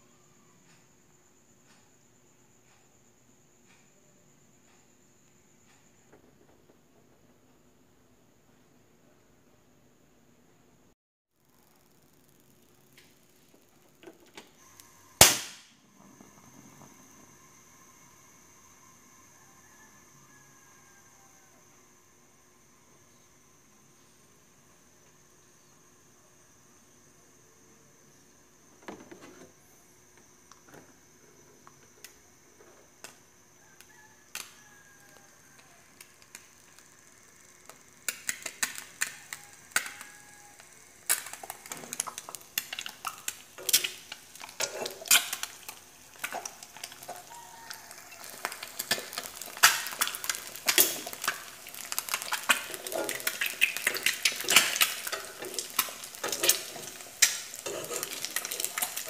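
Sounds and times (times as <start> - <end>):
egg sizzling in frying pan: 31.8 - 59.0
metal spoon scraping pan: 44.6 - 45.2, 57.6 - 58.8.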